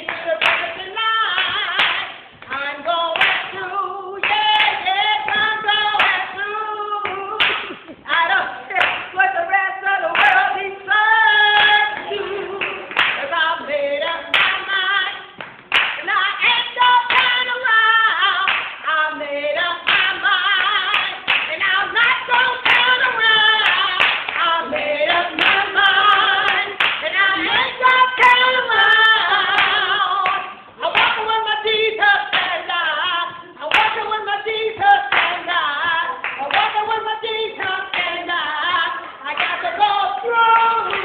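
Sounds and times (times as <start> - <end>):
people singing along: 3.0 - 15.1, 19.0 - 41.0
people clapping in time: 7.0 - 8.0, 11.5 - 13.4, 15.4 - 17.6, 18.4 - 18.9, 19.8 - 28.6, 34.8 - 37.0, 37.6 - 41.0.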